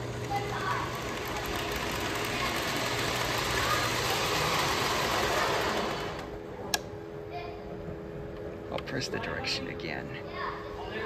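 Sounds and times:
model train motor whirring: 0.0 - 6.3.

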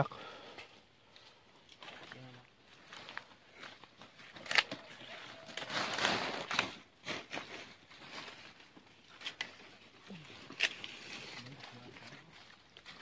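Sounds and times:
leafy branches rustling: 1.0 - 13.0
stems snapping: 4.3 - 4.9, 9.1 - 9.7, 10.4 - 11.1.

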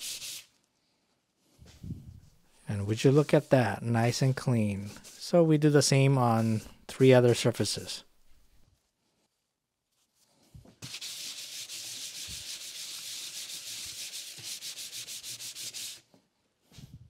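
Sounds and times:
stone rubbing on cardboard: 10.8 - 16.0.

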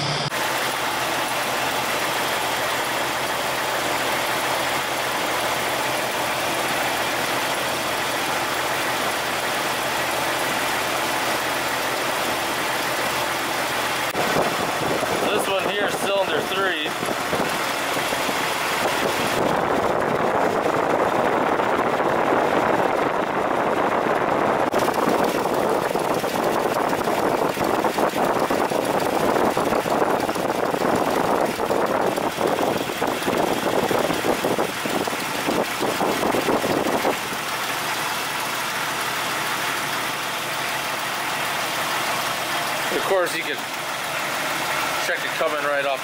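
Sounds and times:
car engine idling: 0.0 - 46.0
rapid even ticking: 24.7 - 45.1.

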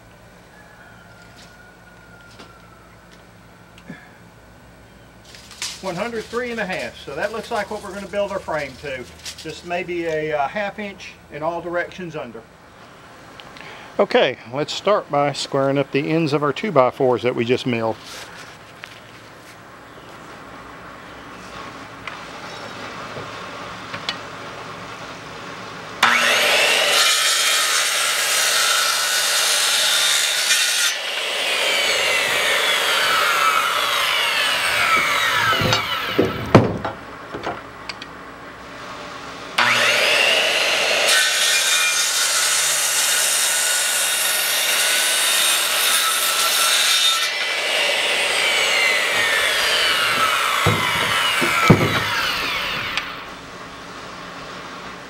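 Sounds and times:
circular saw cutting wood: 5.4 - 10.6, 26.0 - 36.5, 39.5 - 53.4
wood knocks: 35.0 - 37.6, 50.1 - 52.9.

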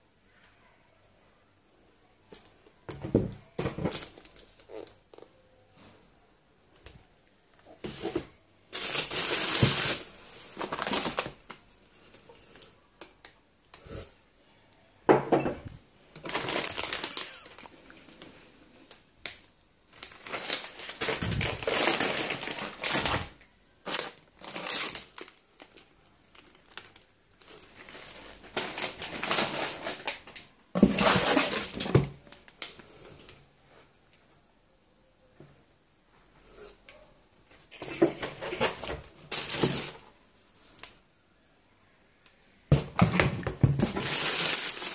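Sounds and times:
packaging crinkling: 8.7 - 11.6, 16.1 - 18.3, 18.9 - 32.8, 37.7 - 40.0, 42.7 - 44.9.

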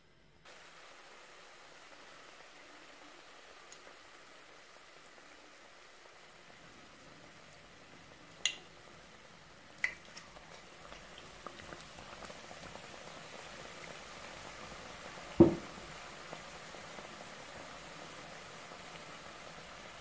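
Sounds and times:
hot oil sizzling and crackling: 0.4 - 20.0
thump: 15.4 - 15.7.

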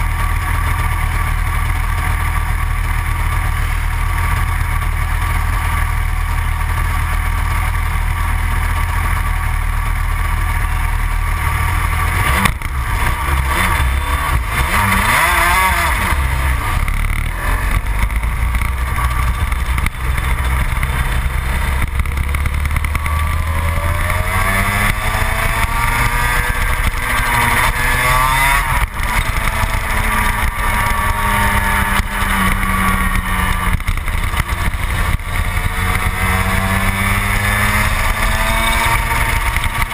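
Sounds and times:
kart engine revving and accelerating: 10.2 - 39.9.

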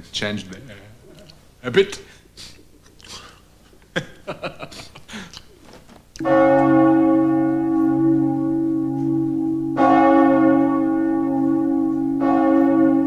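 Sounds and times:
large church bell tolling: 6.2 - 13.0.

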